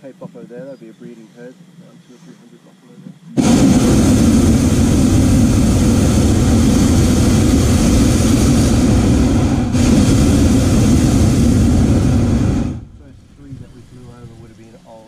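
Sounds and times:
propane burner flame rushing: 0:03.4 - 0:15.0.

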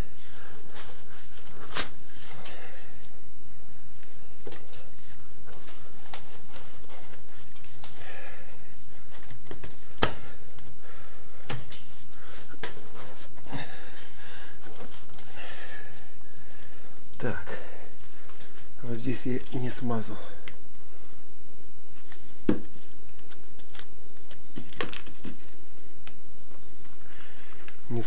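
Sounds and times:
close breathing: 0:07.8 - 0:09.1, 0:10.2 - 0:18.8, 0:26.9 - 0:27.8.

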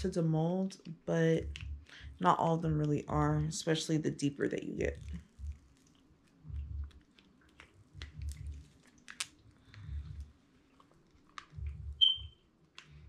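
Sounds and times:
crackles and clicks: 0:05.0 - 0:13.0.

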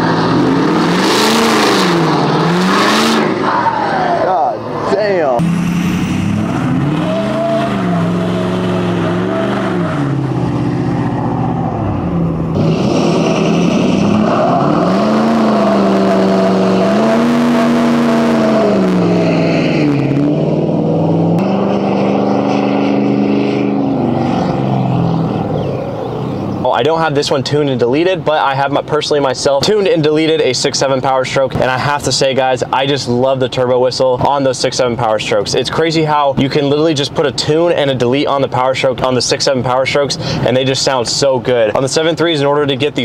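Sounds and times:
diesel engine revving: 0:00.0 - 0:27.2, 0:39.9 - 0:41.8.

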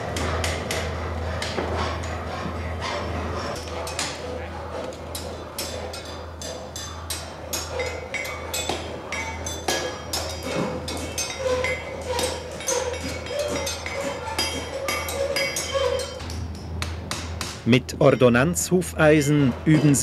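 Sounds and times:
hammer striking iron on anvil: 0:05.1 - 0:18.4.

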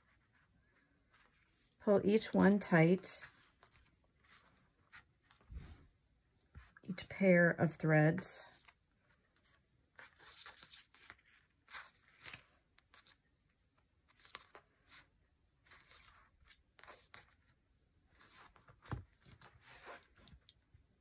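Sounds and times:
paper and thread rustling: 0:02.9 - 0:05.8, 0:08.5 - 0:20.8.

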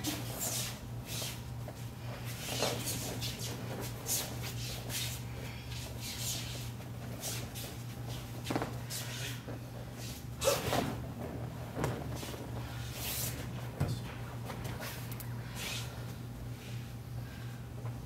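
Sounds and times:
steady low hum: 0:00.0 - 0:18.0
feet shuffling on mat: 0:00.1 - 0:16.0
body falling onto mat: 0:08.4 - 0:08.8, 0:10.4 - 0:12.6.

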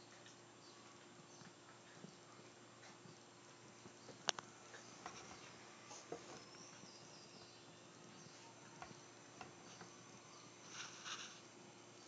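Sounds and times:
faint clicks: 0:04.1 - 0:05.4.

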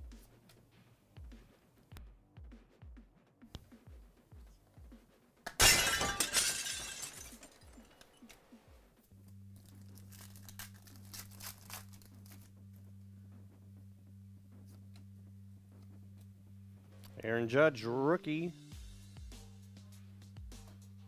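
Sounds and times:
steady low hum: 0:09.2 - 0:17.8
foil wrapper ripping: 0:09.5 - 0:12.5
foil and cards crinkling: 0:09.5 - 0:12.6.

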